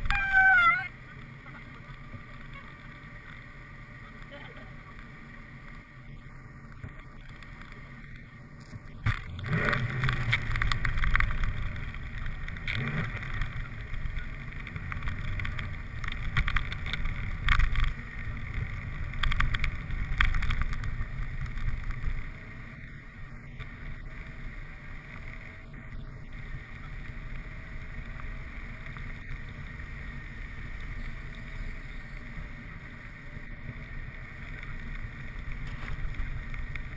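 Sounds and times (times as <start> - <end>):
car road and engine rumble: 0.0 - 36.9
crackles: 0.0 - 36.9.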